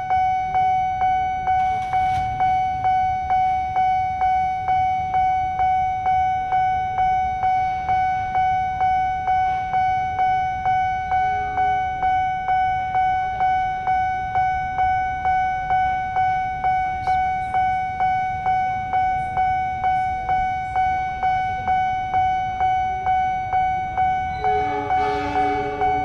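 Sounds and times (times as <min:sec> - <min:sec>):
level crossing bell dinging: 0:24.1 - 0:26.0
train horn: 0:24.2 - 0:26.0.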